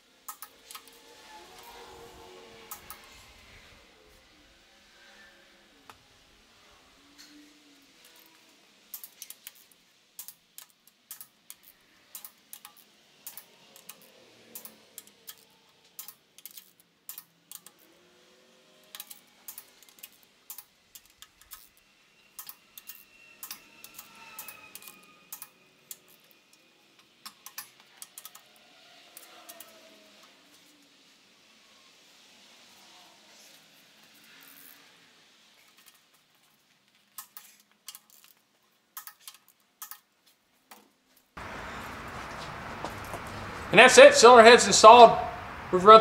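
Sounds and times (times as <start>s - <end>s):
torque wrench ratchet clicks: 8.9s - 15.4s, 16.0s - 17.8s, 18.9s - 21.8s, 22.4s - 26.3s.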